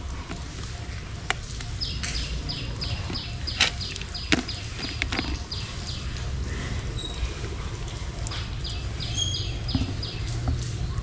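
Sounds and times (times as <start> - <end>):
high-pitched animal calls: 8.7 - 10.2.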